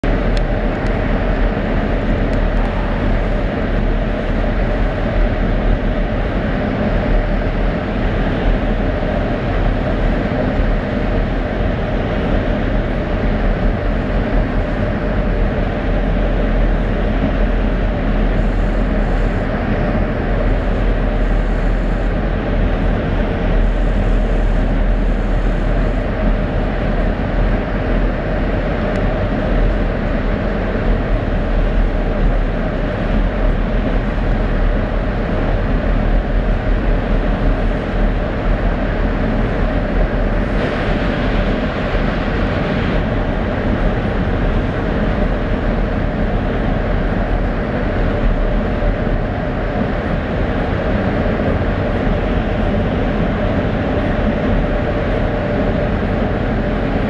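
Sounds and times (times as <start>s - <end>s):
train interior rumble: 0.0s - 57.0s.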